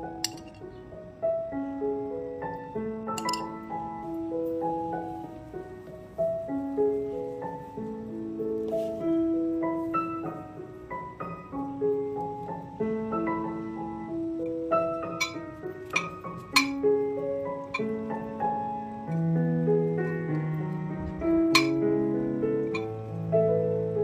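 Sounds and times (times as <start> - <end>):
piano music: 0.0 - 24.0
spoon clinking on ceramic dish: 0.2 - 0.6, 3.2 - 3.6, 15.2 - 16.8, 21.6 - 21.8.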